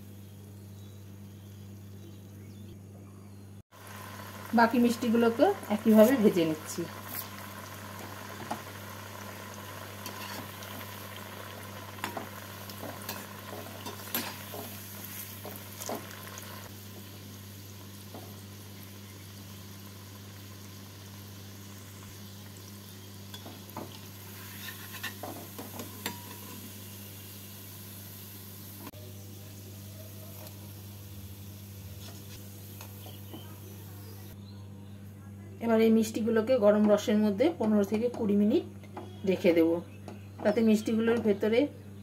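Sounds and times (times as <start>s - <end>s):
deep-frying sizzle in oil: 3.7s - 34.4s.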